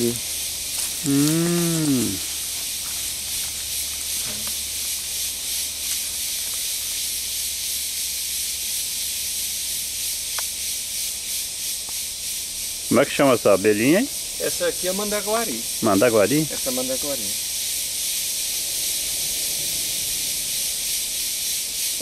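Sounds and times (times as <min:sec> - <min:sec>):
high-pitched hiss: 0:00.0 - 0:22.0
person making vocal sound: 0:01.0 - 0:02.3.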